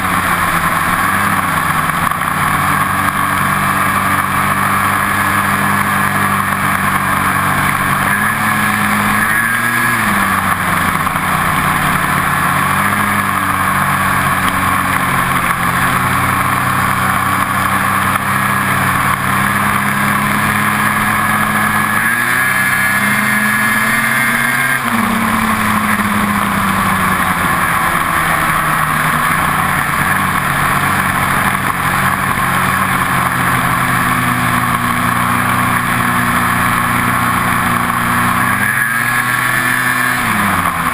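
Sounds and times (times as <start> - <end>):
snowmobile engine running: 0.0 - 40.9.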